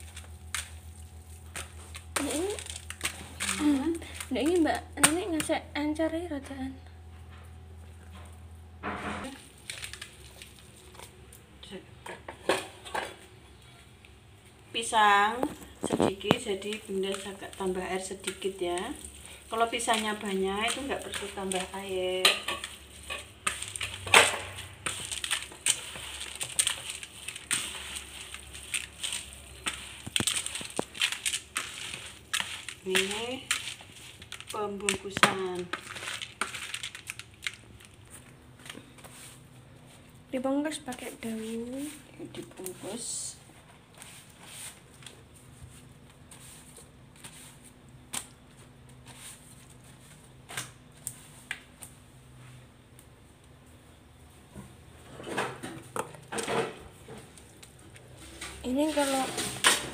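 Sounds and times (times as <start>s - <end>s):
leaves rustling and crackling: 0.0s - 4.8s, 15.0s - 39.4s, 58.2s - 59.7s
low steady hum: 0.0s - 59.9s
hand squeezing wet mixture: 9.4s - 11.4s, 15.6s - 35.1s.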